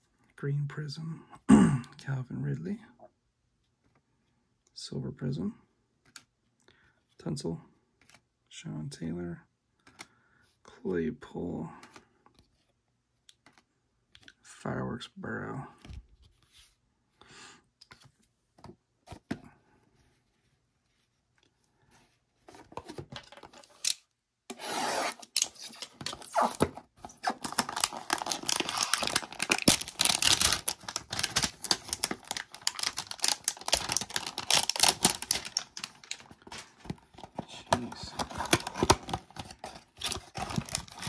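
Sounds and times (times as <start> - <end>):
cardboard and plastic wrap tearing: 24.6 - 36.8, 38.0 - 41.0.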